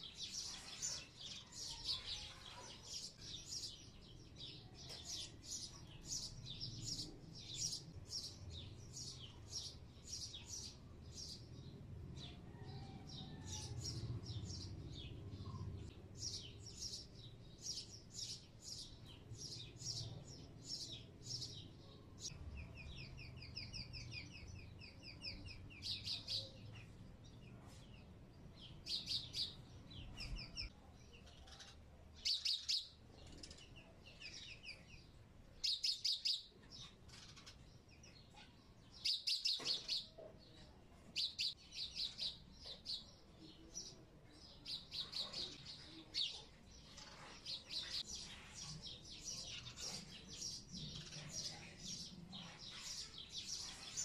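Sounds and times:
small bird chirping: 0:13.2 - 0:54.0.

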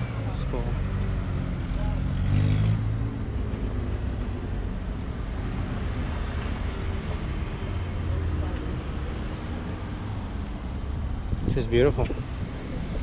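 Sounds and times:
wind noise on microphone: 0:11.1 - 0:13.0.

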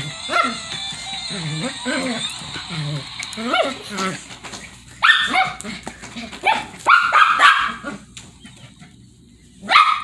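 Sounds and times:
small dog barking: 0:05.0 - 0:05.6, 0:06.4 - 0:08.0, 0:09.6 - 0:10.0.

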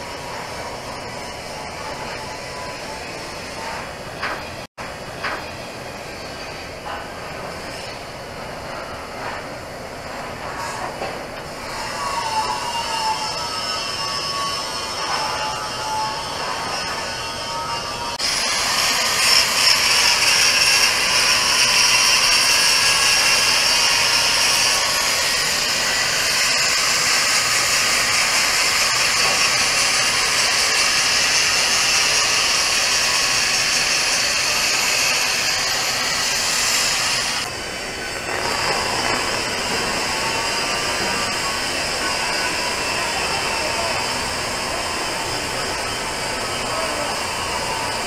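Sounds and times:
angle grinder grinding steel: 0:12.9 - 0:48.0.

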